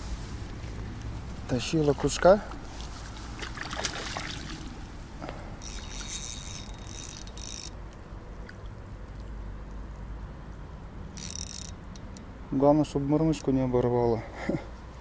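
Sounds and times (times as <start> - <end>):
fishing reel whirring: 5.5 - 7.8, 11.2 - 12.2.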